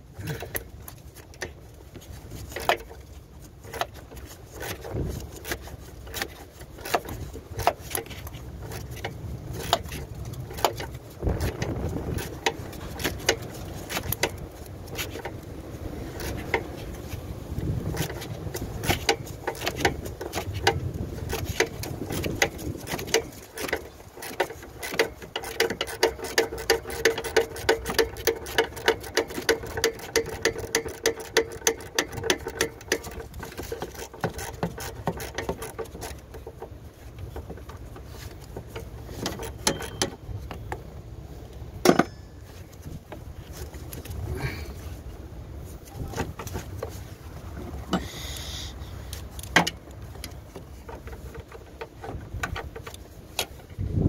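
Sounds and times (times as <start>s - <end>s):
ratchet wrench clicking: 21.4s - 36.2s, 38.7s - 40.1s.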